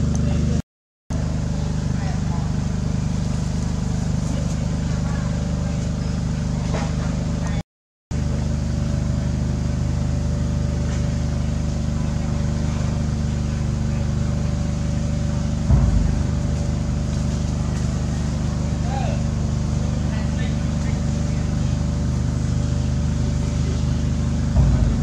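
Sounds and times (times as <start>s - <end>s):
low motor drone: 0.0s - 25.0s
dull thump: 15.7s - 18.4s, 24.5s - 25.0s.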